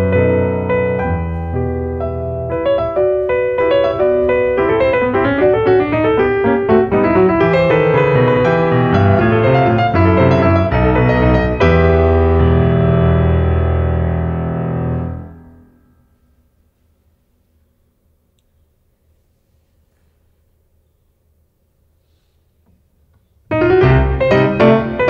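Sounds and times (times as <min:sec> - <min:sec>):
classical piano piece: 0:00.0 - 0:16.2, 0:23.5 - 0:25.0.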